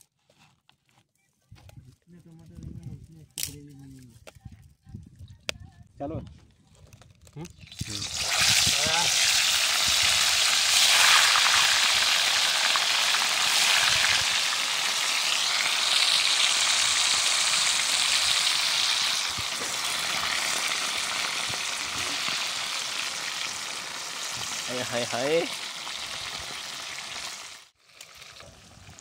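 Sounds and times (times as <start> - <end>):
food sizzling in hot oil: 7.6 - 29.0.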